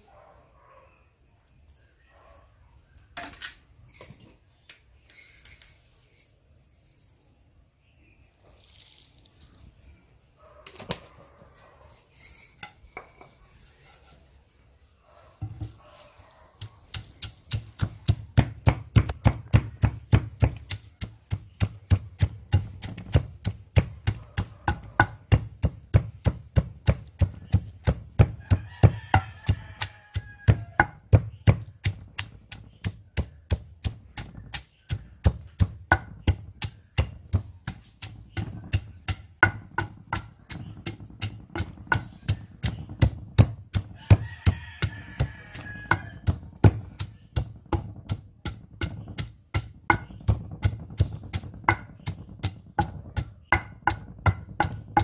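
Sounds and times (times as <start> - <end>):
wooden pestle pounding in stone mortar: 16.6 - 55.0.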